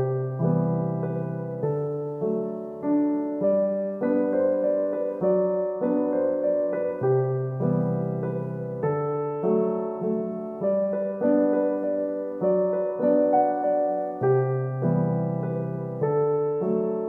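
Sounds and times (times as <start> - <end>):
solo piano music: 0.0 - 17.0.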